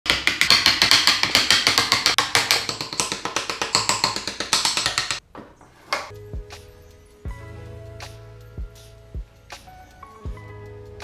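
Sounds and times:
rapid wooden tapping: 0:00.1 - 0:05.2.

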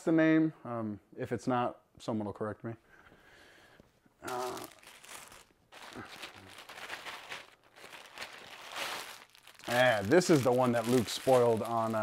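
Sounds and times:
plastic packaging crinkling: 0:04.3 - 0:12.0.

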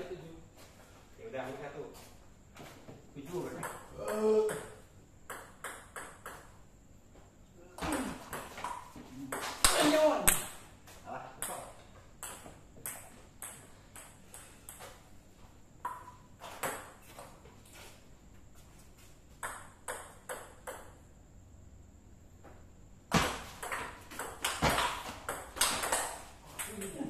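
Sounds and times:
table tennis ball hits: 0:03.5 - 0:06.6, 0:07.8 - 0:10.7, 0:11.4 - 0:15.0, 0:15.8 - 0:17.3, 0:19.4 - 0:21.0, 0:23.1 - 0:27.0.

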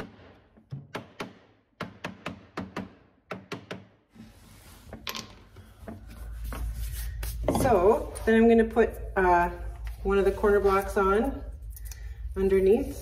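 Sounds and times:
hammer tapping wood: 0:00.6 - 0:04.0.

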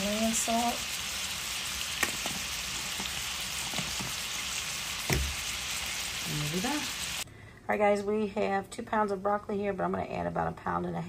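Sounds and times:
chicken sizzling in oil: 0:00.0 - 0:07.2.

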